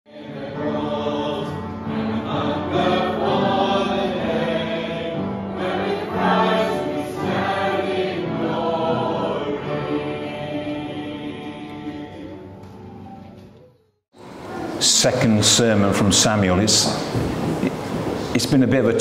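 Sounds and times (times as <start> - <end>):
choir singing held notes: 0.1 - 13.6.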